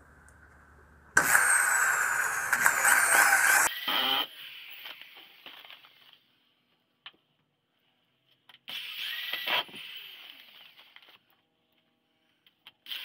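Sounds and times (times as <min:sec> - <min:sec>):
electric drill running: 0:01.2 - 0:03.7.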